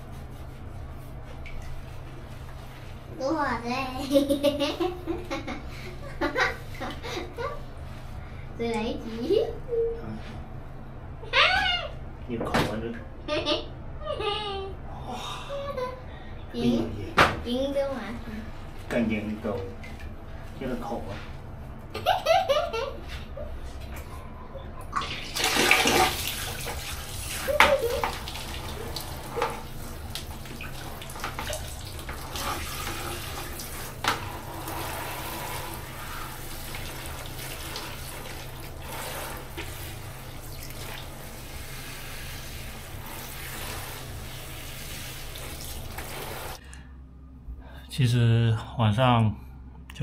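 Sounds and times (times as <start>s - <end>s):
water pouring and splashing: 25.0s - 46.6s.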